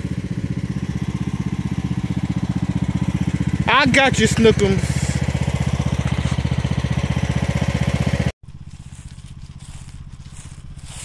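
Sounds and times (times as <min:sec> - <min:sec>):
mower engine running: 0:00.0 - 0:11.0.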